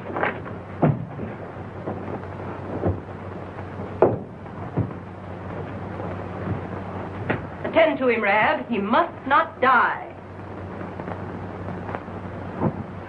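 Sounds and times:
film soundtrack hiss and hum: 0.0s - 13.0s
thumps and knocks: 0.1s - 3.2s, 3.9s - 5.8s, 12.6s - 13.0s.

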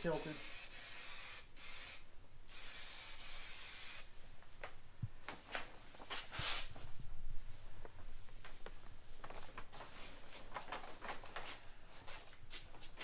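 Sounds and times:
spray paint can hissing: 0.1s - 4.1s.

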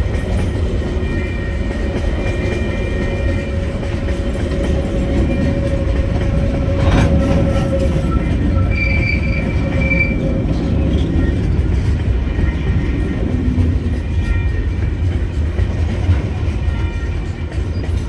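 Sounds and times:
train wheels rumbling on rail: 0.0s - 18.0s
wheel squeal: 6.7s - 11.6s.

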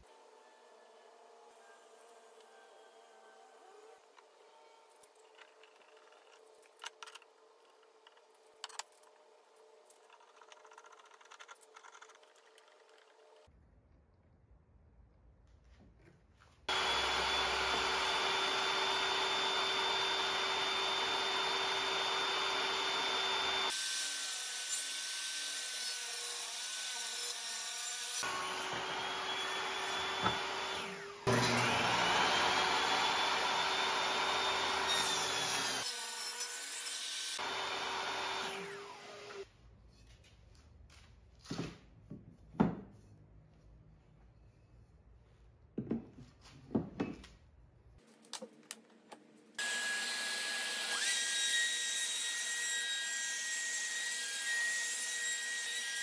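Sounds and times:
saw blade winding down: 16.7s - 23.8s
table saw cutting wood: 16.7s - 39.5s, 49.6s - 56.0s.

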